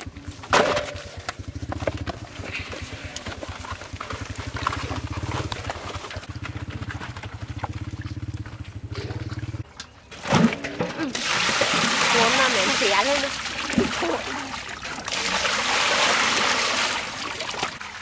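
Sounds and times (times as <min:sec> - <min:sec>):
small engine running: 0:01.2 - 0:09.6
hands scrubbing tripe in basin: 0:11.1 - 0:18.0.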